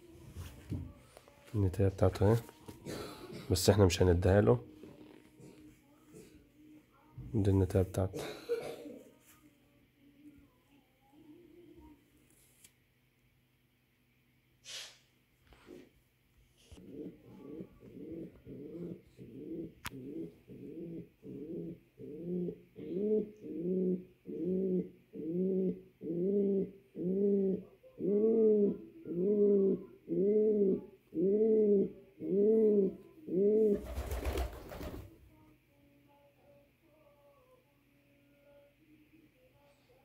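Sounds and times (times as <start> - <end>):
pigeon cooing: 16.8 - 35.1.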